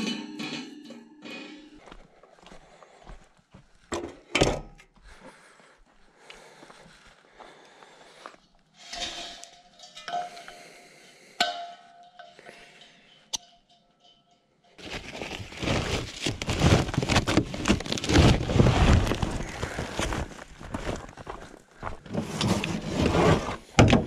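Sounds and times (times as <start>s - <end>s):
plastic bag rustling: 14.8s - 21.1s.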